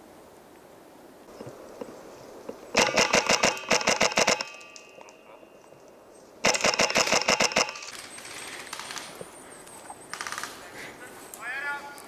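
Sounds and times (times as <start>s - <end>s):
airsoft rifle bursts: 2.8s - 5.2s, 6.4s - 9.2s, 10.1s - 10.6s.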